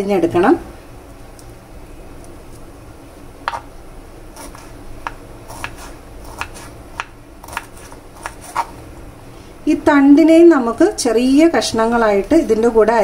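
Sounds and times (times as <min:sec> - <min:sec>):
knife chopping on wooden board: 0:04.4 - 0:08.7.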